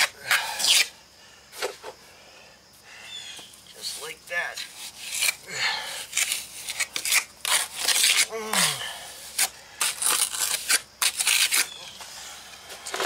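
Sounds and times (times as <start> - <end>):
gritty mortar scraping: 4.6 - 11.8.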